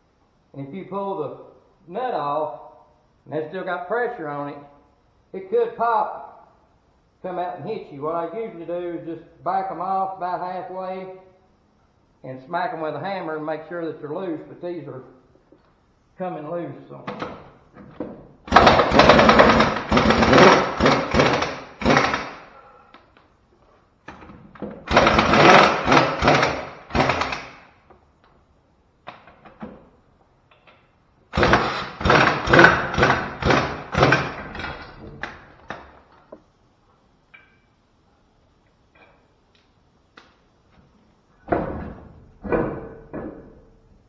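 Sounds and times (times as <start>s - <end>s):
pneumatic impact wrench hammering: 18.5s - 22.6s, 24.2s - 27.7s, 31.3s - 35.3s.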